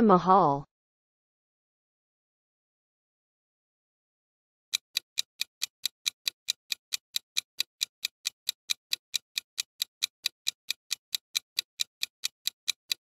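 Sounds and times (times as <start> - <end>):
clock ticking: 4.7 - 13.0.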